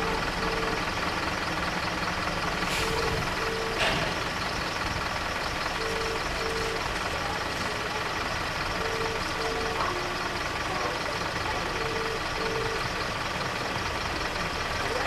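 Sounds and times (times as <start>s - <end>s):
level crossing alarm beeps: 0.0s - 1.0s, 2.8s - 13.2s
traffic idling and passing: 0.0s - 15.0s.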